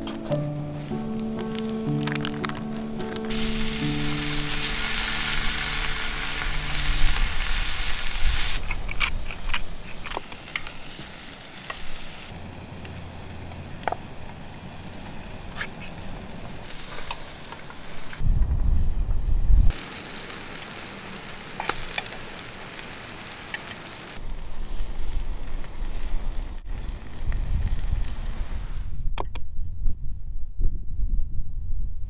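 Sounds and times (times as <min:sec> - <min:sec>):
fish sizzling on a grill pan: 0:00.1 - 0:18.2, 0:19.7 - 0:26.4
low rumble: 0:00.6 - 0:09.0, 0:18.2 - 0:19.7.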